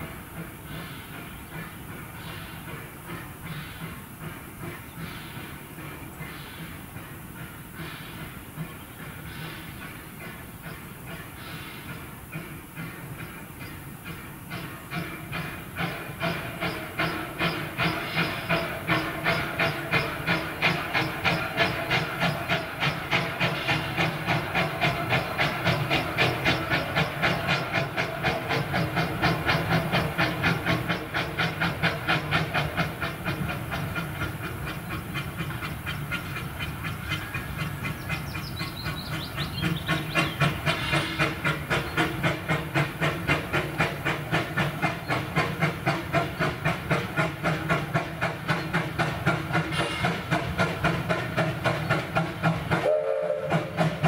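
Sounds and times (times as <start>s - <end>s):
steam hissing: 0.0s - 54.0s
steam locomotive chuffing: 0.0s - 54.0s.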